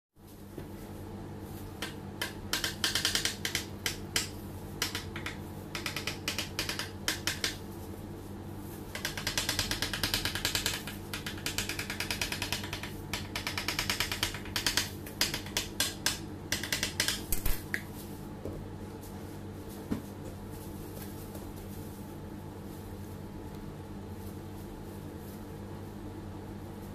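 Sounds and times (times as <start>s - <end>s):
plastic gloves handling cake: 17.9s - 26.9s.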